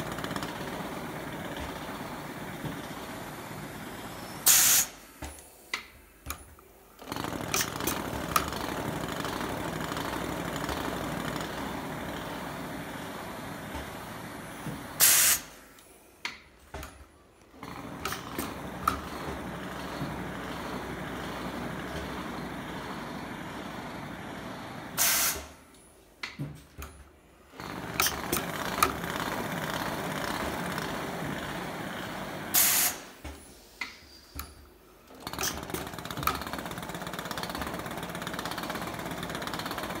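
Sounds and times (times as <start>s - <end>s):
compressed air hiss: 4.4s - 5.1s, 15.0s - 15.7s, 25.0s - 25.6s, 32.5s - 34.3s
machine running mechanically: 17.5s - 25.6s, 27.5s - 33.1s.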